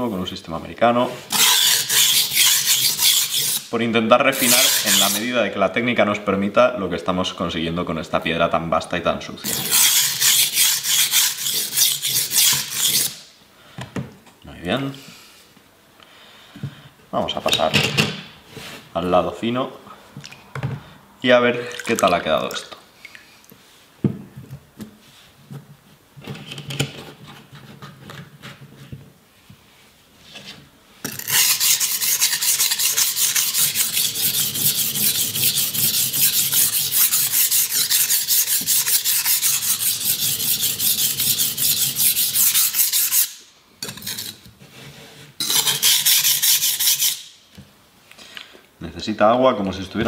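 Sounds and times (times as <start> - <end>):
knife rasping on whetstone: 1.3 - 3.7, 4.4 - 5.3, 9.5 - 13.2, 31.1 - 43.4, 45.4 - 47.2.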